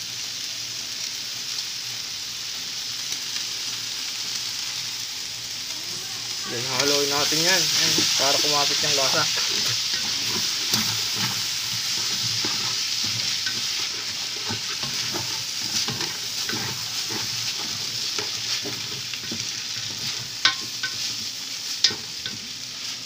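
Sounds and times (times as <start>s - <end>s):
food sizzling in a pan: 0.0s - 23.0s
utensil scraping pan: 6.7s - 22.5s
utensil knocking on pan: 14.5s - 21.0s.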